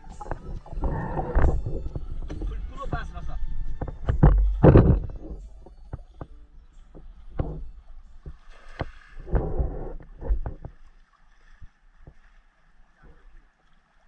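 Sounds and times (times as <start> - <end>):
river water splashing: 0.0 - 14.0
knocks and clatter: 3.8 - 6.3.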